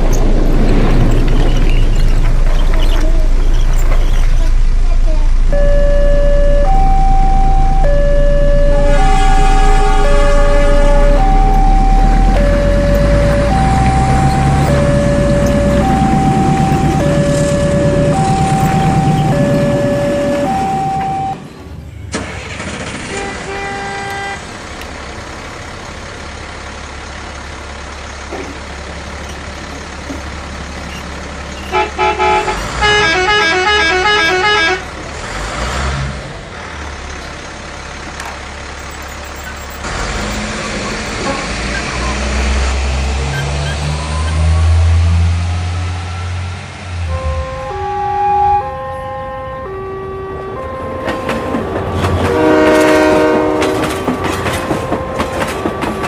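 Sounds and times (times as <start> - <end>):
electronic beeping tune: 5.5 - 21.5.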